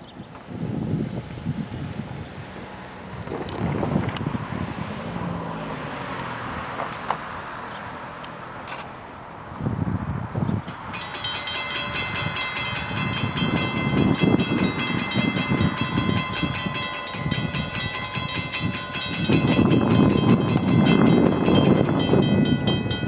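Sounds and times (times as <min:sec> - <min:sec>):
freight train rumbling: 0:10.7 - 0:23.0
crossing bell ringing: 0:10.9 - 0:23.0.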